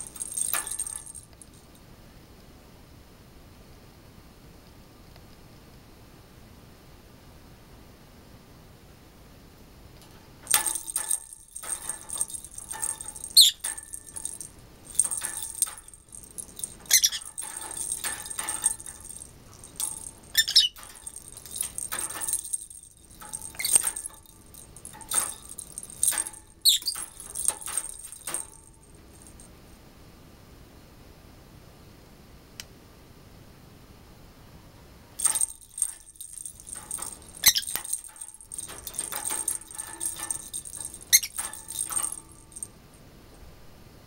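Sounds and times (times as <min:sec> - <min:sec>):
small bell jingling in toy: 0:00.0 - 0:01.8, 0:10.5 - 0:29.5, 0:35.2 - 0:42.7
bird squeaks: 0:13.3 - 0:13.7, 0:16.9 - 0:17.4, 0:20.3 - 0:20.9, 0:26.6 - 0:27.0, 0:37.4 - 0:37.8, 0:41.1 - 0:41.4.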